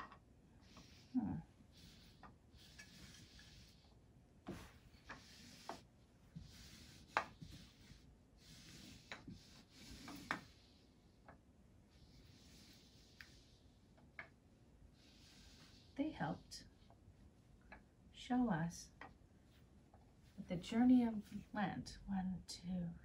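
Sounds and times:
puzzle pieces sliding on carpet: 1.7s - 10.7s.

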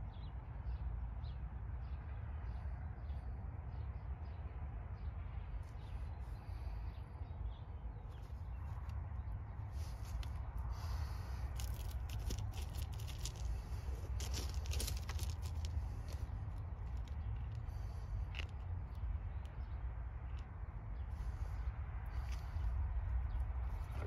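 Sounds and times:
steady low rumble: 0.0s - 24.0s
gloved hands scraping and rustling: 9.8s - 18.6s.

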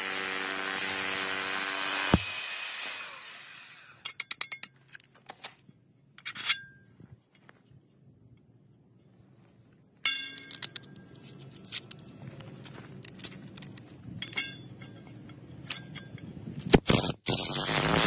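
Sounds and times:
impact driver hammering: 2.0s - 2.5s
metallic clinks and rattles: 10.0s - 16.3s.

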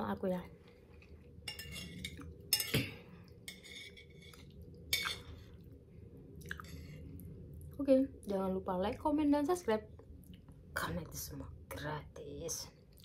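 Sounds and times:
spoon clinking and scraping dish: 1.4s - 5.3s.

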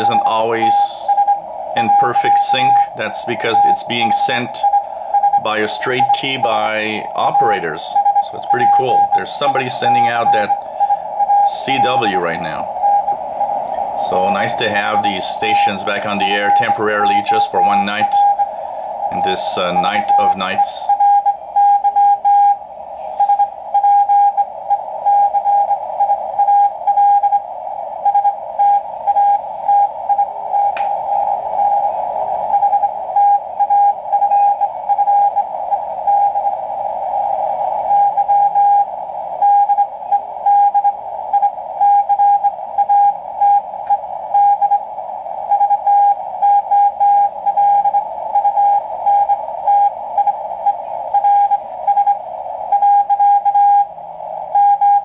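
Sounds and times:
morse code tone: 0.0s - 27.4s, 32.5s - 36.8s, 37.9s - 53.9s, 54.5s - 55.0s
static hiss: 0.0s - 55.0s.

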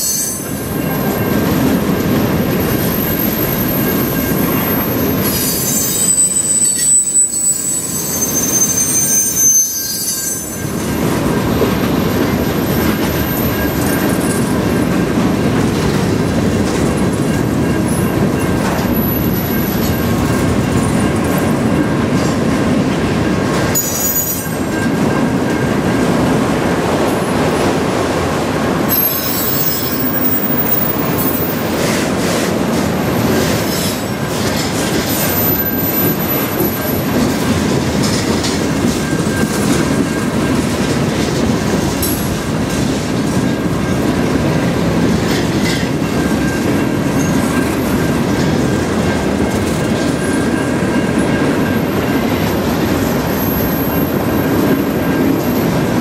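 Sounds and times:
high-pitched wheel squeals: 0.0s - 1.6s, 2.5s - 11.1s, 23.8s - 24.6s, 28.9s - 32.0s
freight train wheels rumbling: 0.0s - 56.0s.

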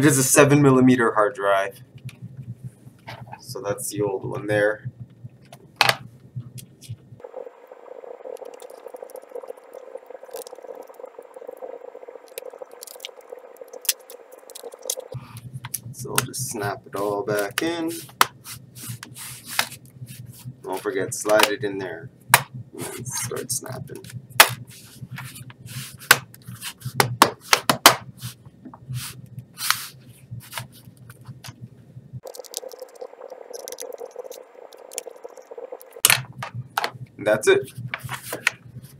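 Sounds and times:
steady rushing noise: 6.4s - 21.9s
hands rubbing on plastic: 17.0s - 20.9s, 24.7s - 31.5s.

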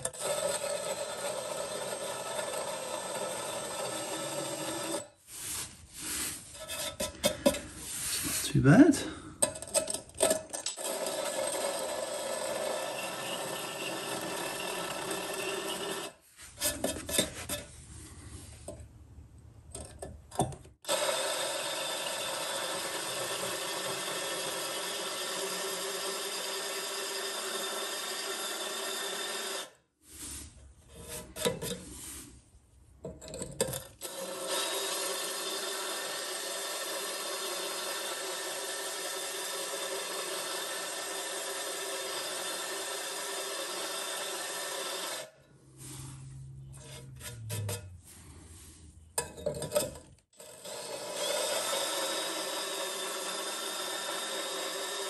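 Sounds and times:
drill grinding into concrete: 0.0s - 5.2s, 6.4s - 17.6s, 20.8s - 29.9s, 33.6s - 46.0s, 50.3s - 55.0s
short uneven scrapes: 5.2s - 8.6s, 16.2s - 18.8s, 30.0s - 32.6s, 45.5s - 49.2s.

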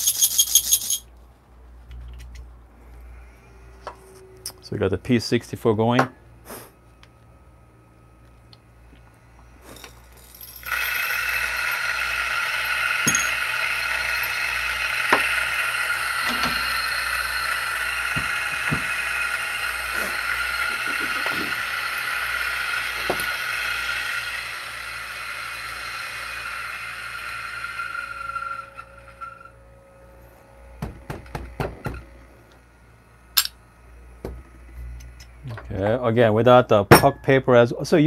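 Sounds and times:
beans cracking in grinder: 8.5s - 24.5s
coffee grinder motor: 9.5s - 29.7s.

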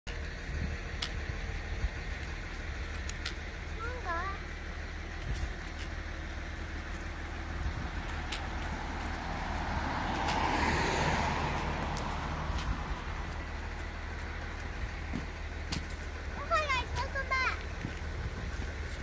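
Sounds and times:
car passing: 0.3s - 19.0s
footsteps crunching in dry leaves: 5.0s - 16.3s.

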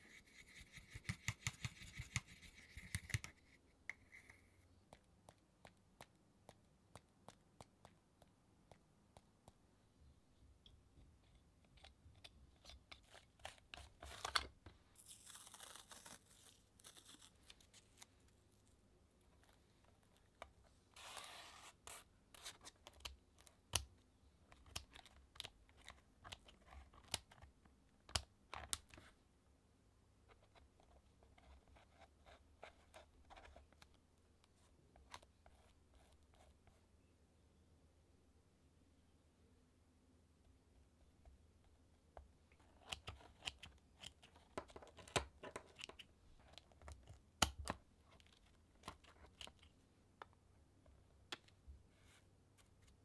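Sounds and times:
taps and clicks on paper: 0.7s - 3.4s.

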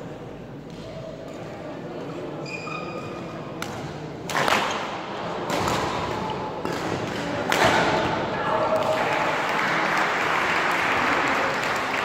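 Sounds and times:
rackets hitting shuttlecock: 3.6s - 8.2s.

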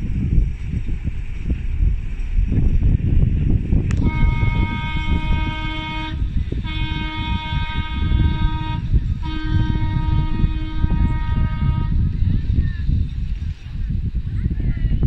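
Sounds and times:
constant low rumble: 0.0s - 15.0s
horn blasts: 3.9s - 12.0s.

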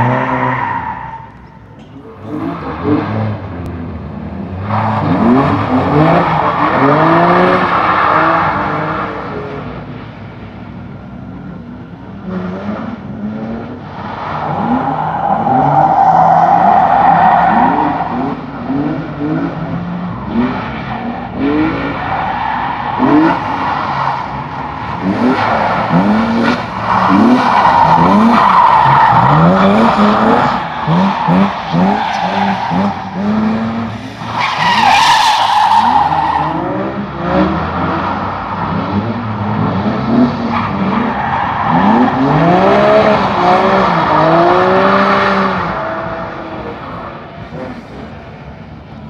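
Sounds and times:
car engine revving hard: 25.0s - 34.9s, 35.8s - 46.6s.

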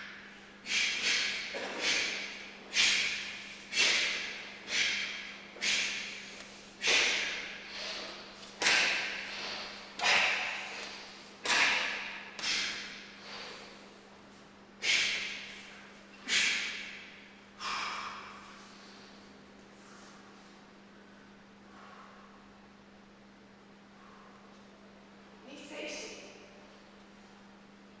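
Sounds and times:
forceful exhalation: 0.0s - 14.0s, 14.8s - 19.2s.

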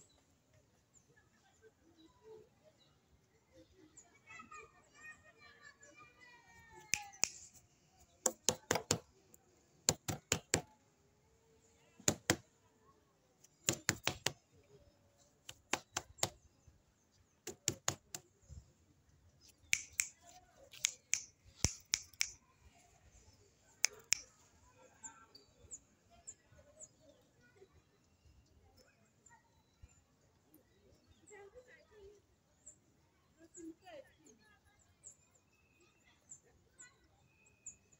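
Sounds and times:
sharp clicks: 6.9s - 7.6s, 8.3s - 9.1s, 9.9s - 10.7s, 12.0s - 12.4s, 13.4s - 14.4s, 15.4s - 16.4s, 17.4s - 18.2s, 19.5s - 22.4s, 23.8s - 24.3s.

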